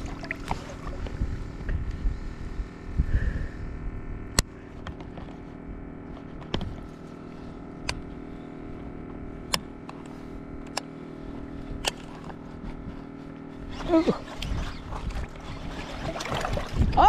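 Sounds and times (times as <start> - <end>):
outboard motor idling: 0.0 - 17.0
sharp clicks: 9.5 - 10.9.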